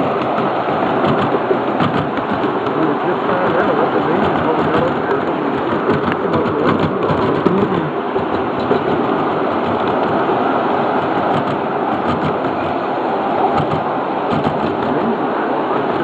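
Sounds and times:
miniature train wheels clattering: 5.6 - 10.2.

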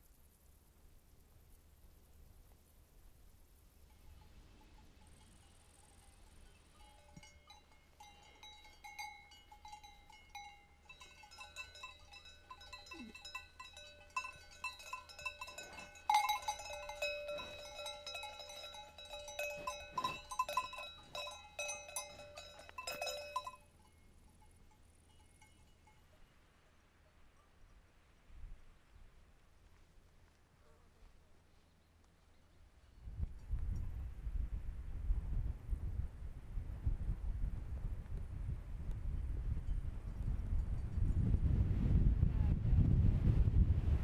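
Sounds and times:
livestock bells clanking: 3.9 - 26.2.

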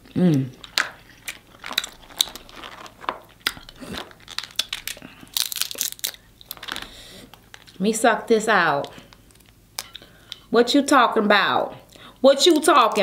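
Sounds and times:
crab shells cracking: 0.5 - 7.8, 8.8 - 10.5.

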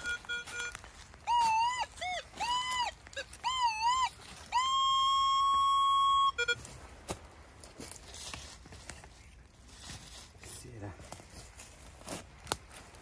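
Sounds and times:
metal detector long steady tone: 0.0 - 1.8, 3.6 - 6.6
metal detector warbling beeps: 0.0 - 6.6.

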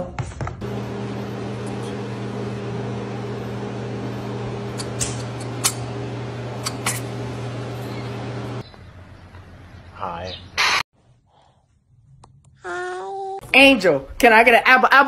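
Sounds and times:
low mechanical hum: 0.6 - 10.1.

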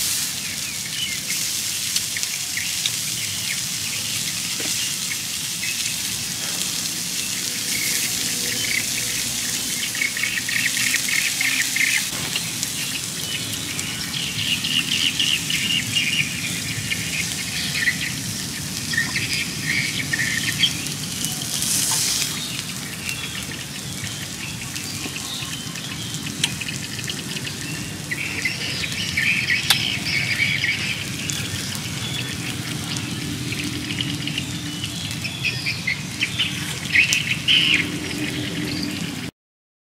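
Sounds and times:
steaks sizzling on hot stone: 0.0 - 38.8
birds chirping: 0.3 - 39.3.

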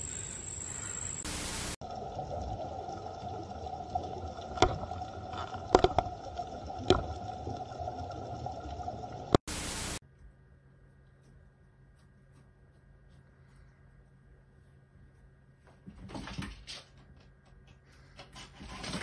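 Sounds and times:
underwater hiss and hum: 0.0 - 10.0.

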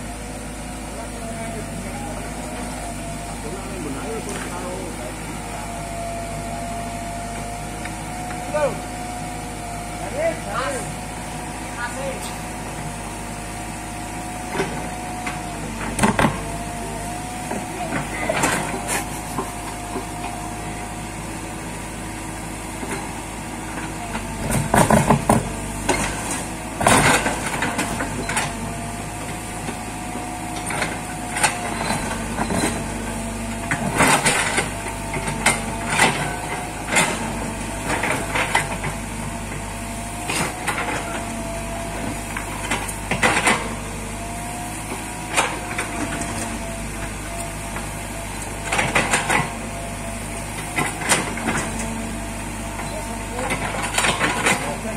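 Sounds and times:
excavator engine and hydraulics droning: 0.0 - 54.9.

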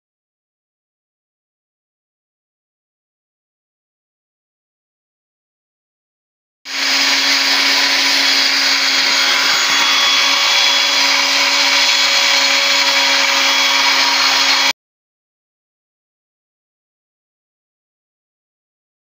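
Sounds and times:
masonry saw cutting brick: 6.7 - 14.8.

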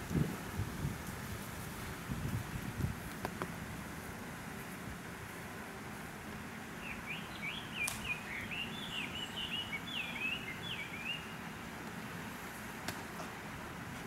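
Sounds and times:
outdoor background noise: 0.0 - 14.0
songbird chirping: 6.7 - 11.6
sharp click: 7.8 - 8.1.

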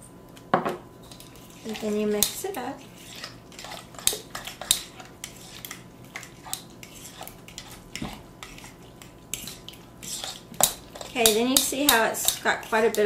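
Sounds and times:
utensil scraping ceramic bowl: 1.0 - 13.0.

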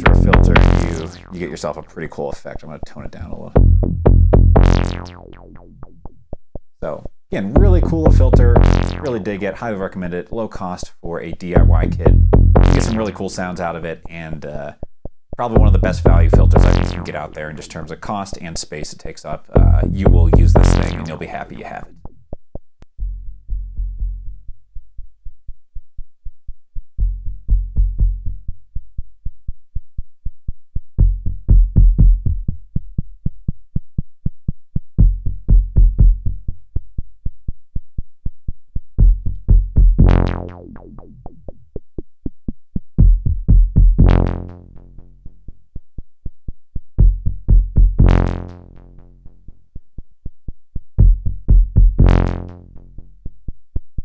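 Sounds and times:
buzzing filter sweep: 0.0 - 1.5, 3.6 - 6.1, 12.1 - 13.2, 16.2 - 17.4, 19.7 - 21.4, 40.0 - 42.1
modular synthesizer sequenced notes: 0.0 - 1.6, 3.6 - 6.1, 7.6 - 9.2, 11.6 - 13.4, 15.6 - 17.5, 19.6 - 21.6, 40.0 - 42.5.

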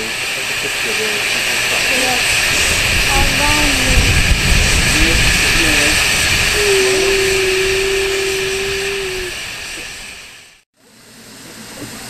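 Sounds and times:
steam hissing: 0.0 - 12.0
held whistle tone: 6.5 - 10.2.

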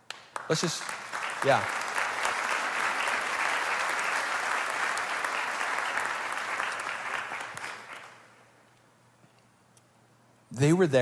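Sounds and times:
congregation applauding: 0.0 - 8.6.

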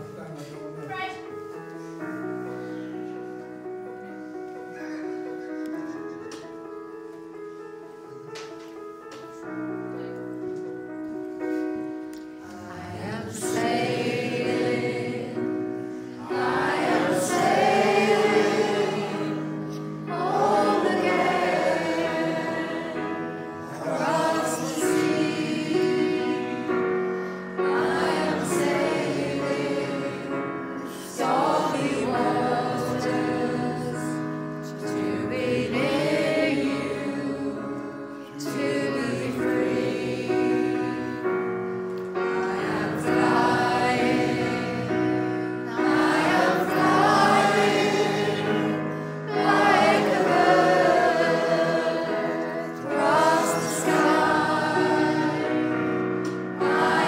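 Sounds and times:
choir singing: 11.5 - 57.0.

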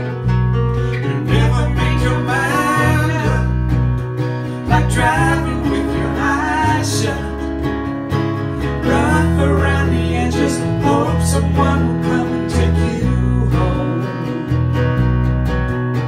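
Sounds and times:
low bass notes: 0.0 - 16.0
strummed acoustic guitar: 0.0 - 16.0
person singing: 0.9 - 3.7, 4.5 - 7.5, 8.6 - 14.8.

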